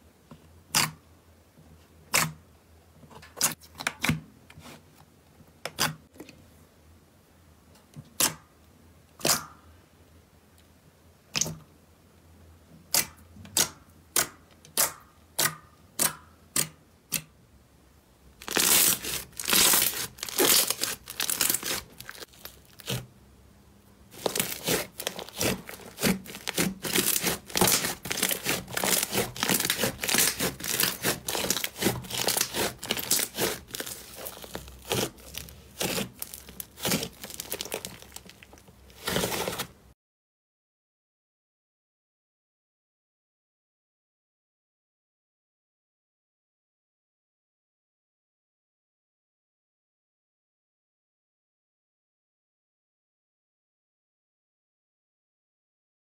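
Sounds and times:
slime squished with rapid crackling: 18.4 - 23.1, 24.1 - 39.7.

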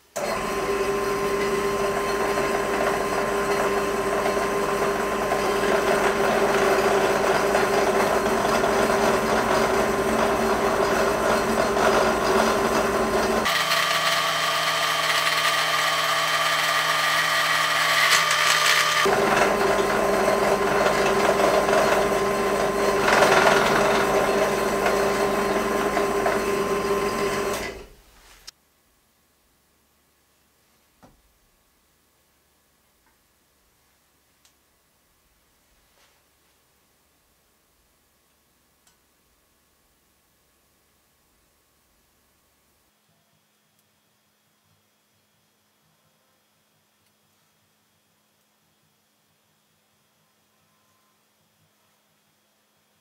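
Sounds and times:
drill press drilling into metal: 0.2 - 27.9.

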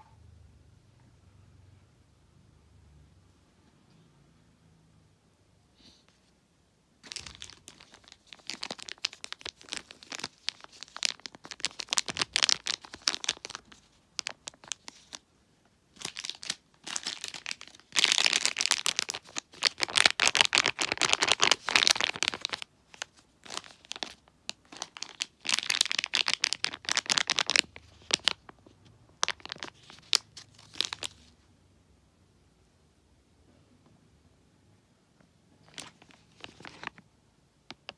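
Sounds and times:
plastic wrappers crinkling: 7.0 - 15.2, 15.9 - 31.3, 35.6 - 37.0.

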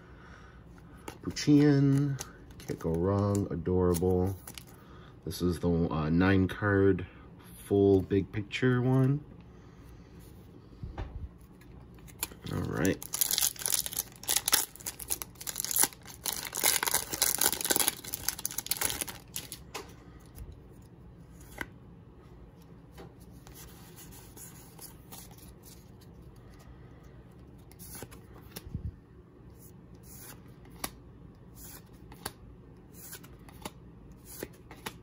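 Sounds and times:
cards being handled: 1.0 - 4.8, 11.4 - 21.8, 22.5 - 26.7, 27.3 - 28.8, 29.5 - 35.0
foil wrapper crinkling and tearing: 12.0 - 19.6.

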